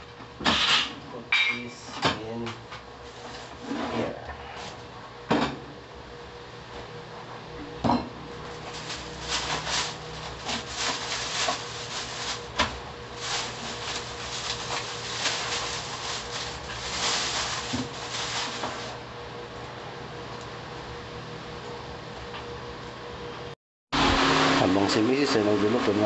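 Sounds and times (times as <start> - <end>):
plastic bags rustling: 8.5 - 19.0.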